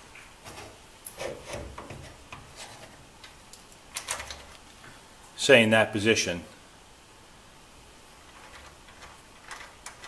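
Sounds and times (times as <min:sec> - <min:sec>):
light metal clicks and rubbing: 0:08.2 - 0:10.0.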